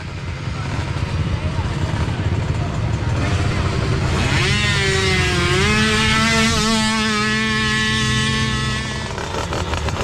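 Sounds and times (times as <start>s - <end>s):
small quad engine revving: 0.0s - 10.0s.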